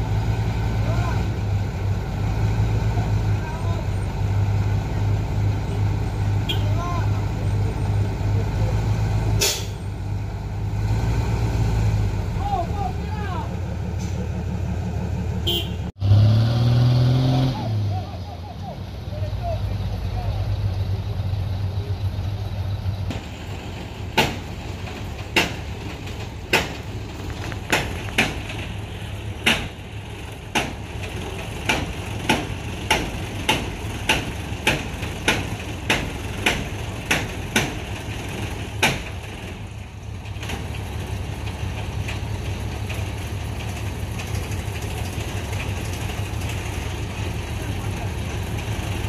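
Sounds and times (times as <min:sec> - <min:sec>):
diesel truck engine idling: 0:00.0 - 0:16.0, 0:17.7 - 0:49.0
sharp knocks: 0:25.3 - 0:25.7, 0:26.5 - 0:26.9, 0:29.4 - 0:29.8, 0:31.6 - 0:37.9, 0:38.8 - 0:39.2.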